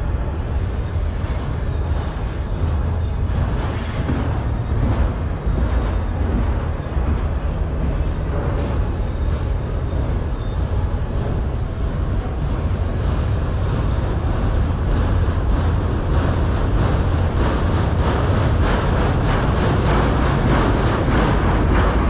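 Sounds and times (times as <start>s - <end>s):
freight train wheels rumbling on rails: 0.0s - 22.0s
wheels clicking over rail joints: 12.2s - 22.0s.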